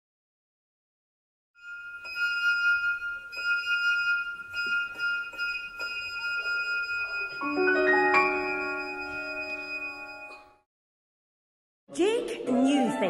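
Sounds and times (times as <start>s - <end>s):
run of lower ringing notes: 1.6s - 10.5s.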